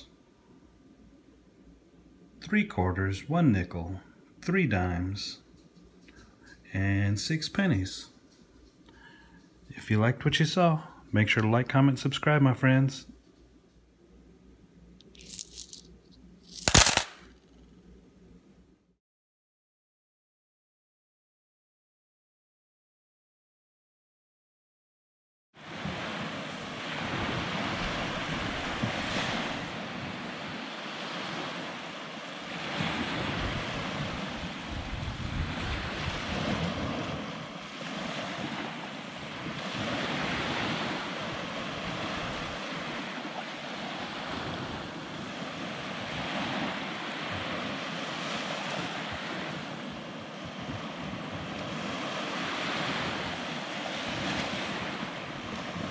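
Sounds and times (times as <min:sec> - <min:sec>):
surf washing up a beach: 0:25.6 - 0:55.9.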